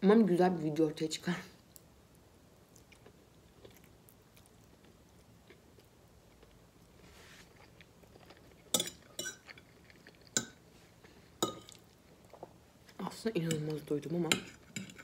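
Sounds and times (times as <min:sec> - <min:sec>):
person chewing food: 0:01.7 - 0:13.0
fork clinking on plate: 0:08.7 - 0:09.5.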